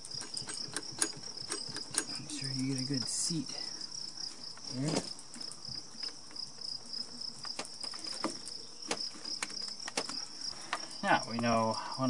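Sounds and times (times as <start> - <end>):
sharp clicks and knocks: 0.0 - 3.1, 7.4 - 11.5
crickets trilling: 0.0 - 12.0.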